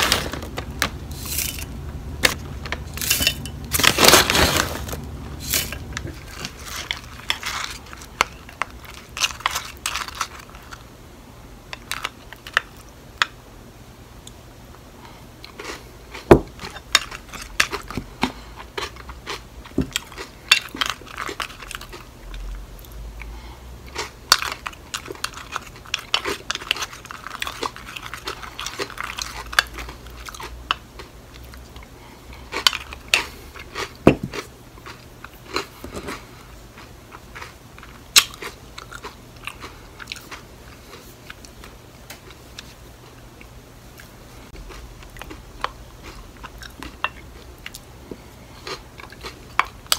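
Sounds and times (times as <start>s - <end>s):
crunchy chewing: 2.3s - 10.9s, 23.9s - 49.9s.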